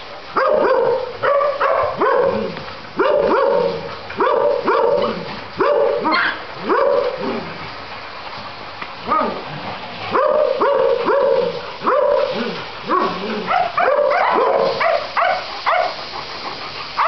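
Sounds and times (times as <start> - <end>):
young dog barking: 0.3 - 7.4, 9.0 - 9.5, 10.1 - 16.0.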